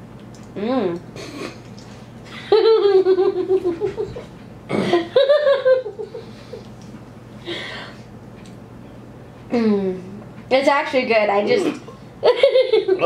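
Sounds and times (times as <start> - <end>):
woman laughing: 2.4 - 6.6, 12.2 - 13.0.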